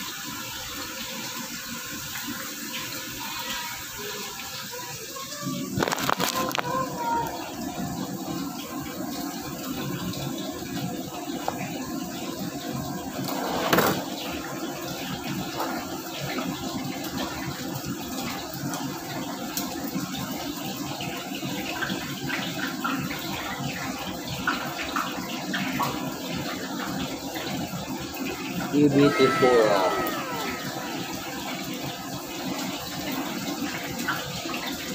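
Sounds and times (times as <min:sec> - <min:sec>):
kitchen rushing noise: 0:13.2 - 0:14.2.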